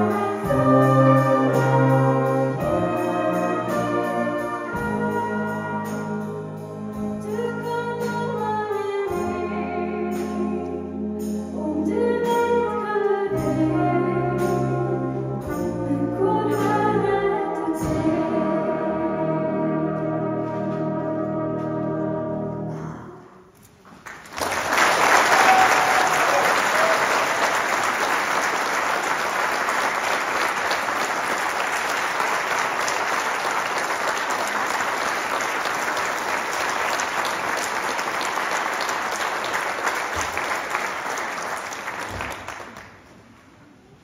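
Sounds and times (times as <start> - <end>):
brass band chord: 0.0 - 7.2, 17.7 - 22.9
audience applause: 24.0 - 43.3.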